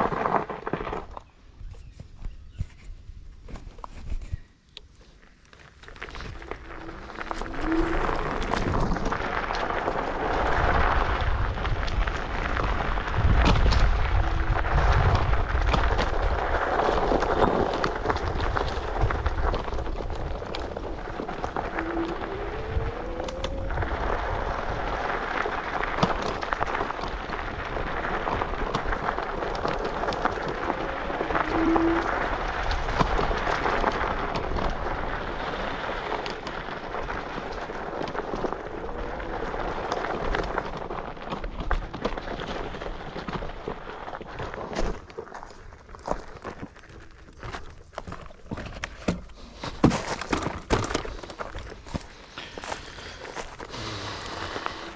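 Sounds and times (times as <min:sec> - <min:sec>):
wind buffeting microphone: 0:06.2 - 0:37.8.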